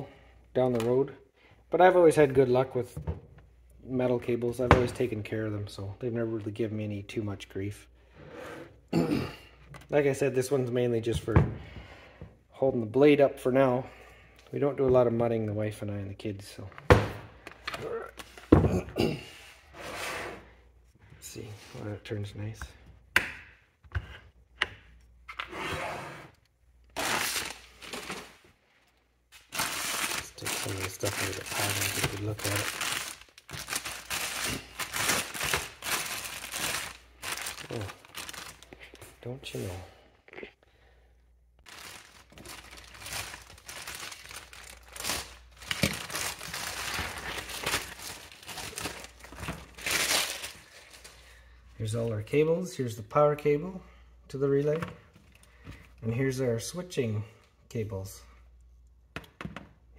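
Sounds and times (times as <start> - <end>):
plastic bag crinkling: 27.0 - 28.4, 29.4 - 39.1, 41.6 - 51.2
plastic packaging rustling: 27.0 - 28.6, 29.4 - 39.8, 41.6 - 51.4.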